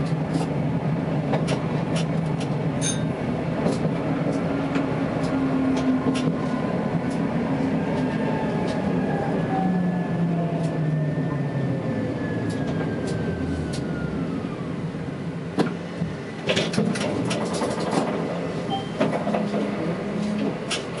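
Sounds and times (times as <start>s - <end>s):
tram wheels clicking and clacking: 0.0s - 8.9s, 12.4s - 13.9s, 15.5s - 21.0s.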